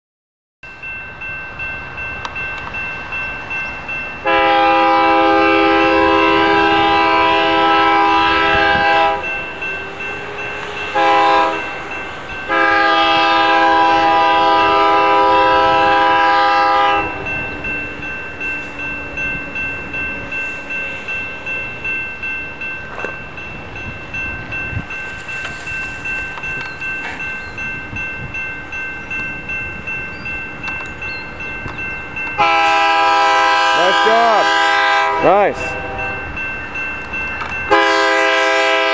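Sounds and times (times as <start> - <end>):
crossing warning bell ringing: 0.6 - 38.9
locomotive air horn blasts: 4.2 - 9.3, 10.9 - 11.8, 12.5 - 17.3, 32.4 - 36.2, 37.7 - 38.9.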